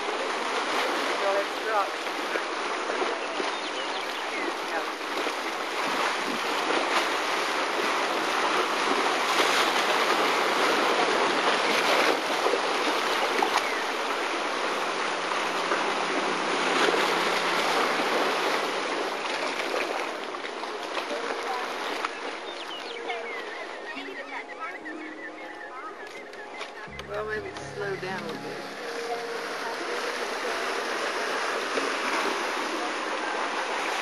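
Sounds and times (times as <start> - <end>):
mud bubbling and steam rushing: 0.0 - 24.3.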